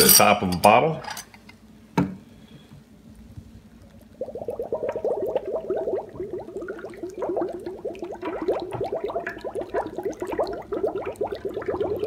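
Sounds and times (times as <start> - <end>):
bottle gurgling under water: 3.9 - 12.0.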